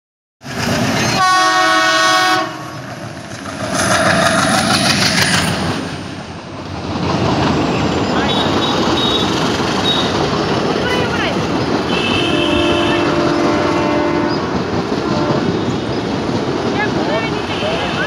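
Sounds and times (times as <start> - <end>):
locomotive engine rumble: 0.5 - 18.0
diesel locomotive horn: 1.2 - 2.8, 8.2 - 10.1, 11.9 - 15.8, 17.1 - 18.0
wheels clicking over rail joints: 6.5 - 18.0.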